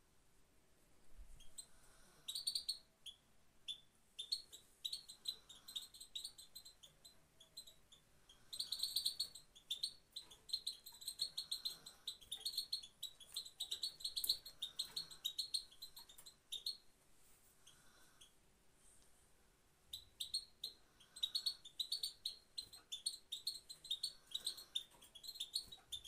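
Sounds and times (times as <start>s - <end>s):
finch chirping call: 8.5s - 16.8s, 19.9s - 26.0s.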